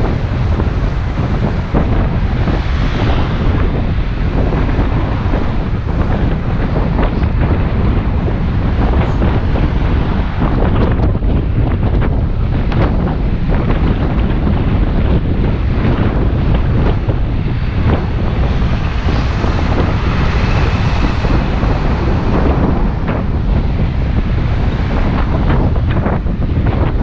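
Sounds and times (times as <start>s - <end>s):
vehicle passing: 0.0s - 10.5s, 16.6s - 25.9s
wind buffeting microphone: 0.0s - 27.0s.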